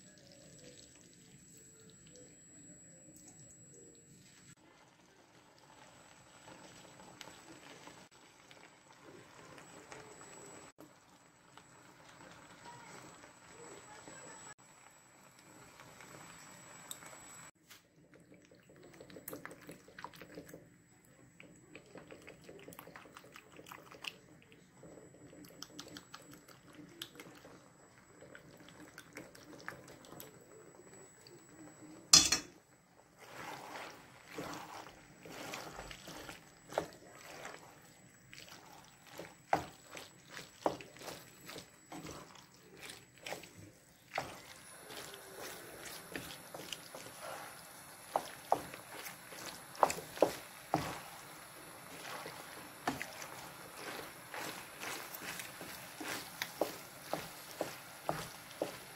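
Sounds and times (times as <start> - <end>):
utensil stirring in frying pan: 4.3 - 14.6, 21.4 - 58.9.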